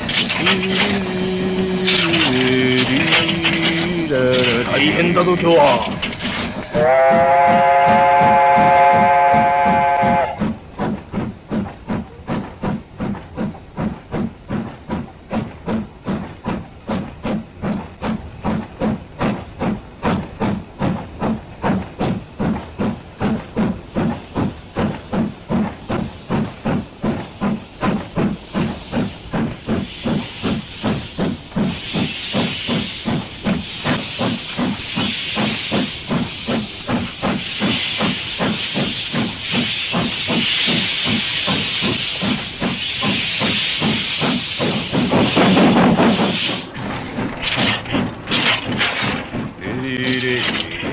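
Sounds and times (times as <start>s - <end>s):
steam hissing: 0.0s - 50.9s
steam locomotive chuffing: 0.0s - 50.9s
steam whistle: 6.7s - 10.5s.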